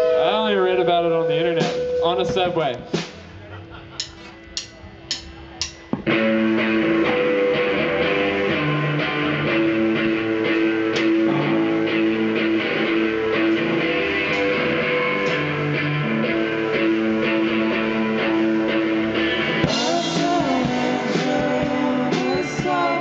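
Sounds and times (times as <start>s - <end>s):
drums: 0.0s - 23.0s
electric guitar: 5.8s - 23.0s.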